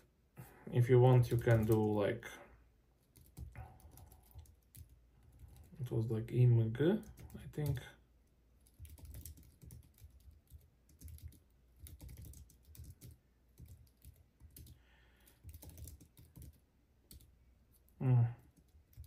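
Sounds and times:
typing on computer keyboard: 1.1 - 2.0, 3.0 - 5.8, 8.6 - 17.8, 18.5 - 19.0.

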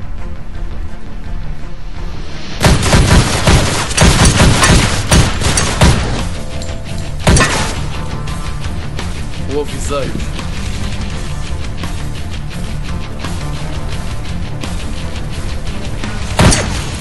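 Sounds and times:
soundtrack music with low beat: 0.0 - 17.0
heavy booming hits: 2.6 - 6.5.

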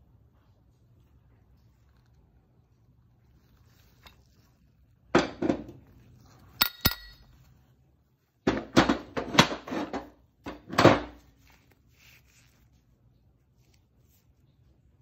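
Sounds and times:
sharp metallic clinks: 6.6 - 7.3.

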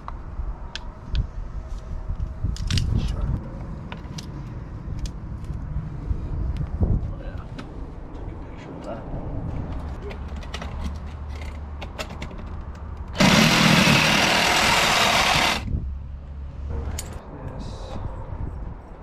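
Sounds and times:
cordless power tool running: 13.2 - 15.7.

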